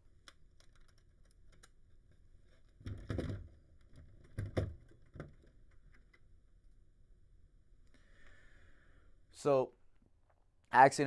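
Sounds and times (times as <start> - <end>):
small plastic clicks: 0.1 - 6.3.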